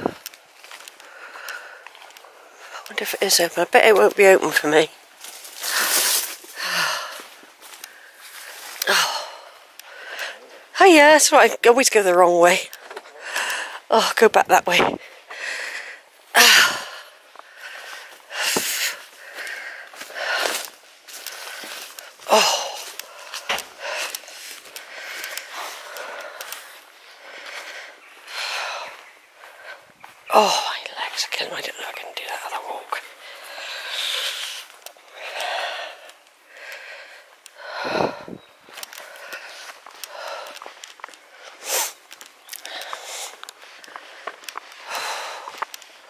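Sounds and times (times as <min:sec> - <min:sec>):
person breathing hard: 0:00.8 - 0:02.9, 0:05.5 - 0:10.7, 0:13.1 - 0:13.9, 0:15.0 - 0:30.8, 0:33.1 - 0:46.0.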